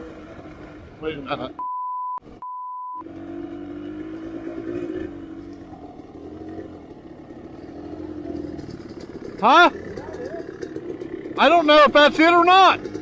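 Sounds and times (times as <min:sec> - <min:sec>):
censor bleep: 0:01.6 - 0:03.0
dirt bike engine idling: 0:03.1 - 0:13.0.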